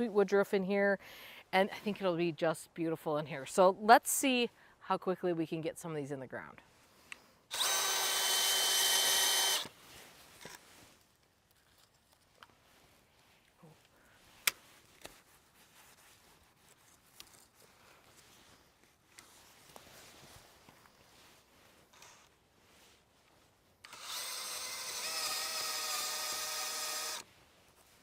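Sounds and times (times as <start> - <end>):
cordless drill motor whine: 7.5 - 9.7, 23.8 - 27.3
faint rustles: 9.7 - 23.7.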